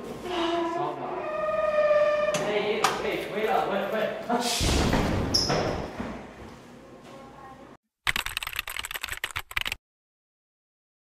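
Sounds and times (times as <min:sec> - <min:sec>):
typing clicks: 0:08.1 - 0:09.8.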